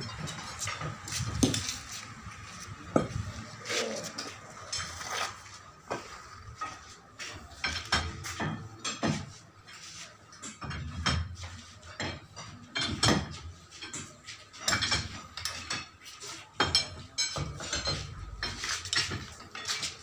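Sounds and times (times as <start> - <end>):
metallic clinks and knocks: 10.3 - 20.0.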